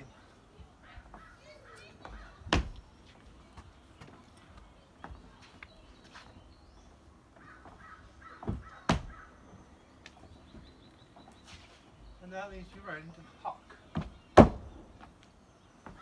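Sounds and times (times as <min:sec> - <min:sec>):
crow cawing: 0:07.4 - 0:09.4.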